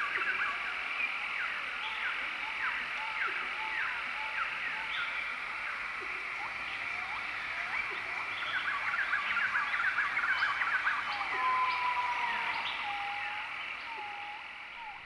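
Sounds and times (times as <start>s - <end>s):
birds chirping and whistling: 6.4s - 15.0s.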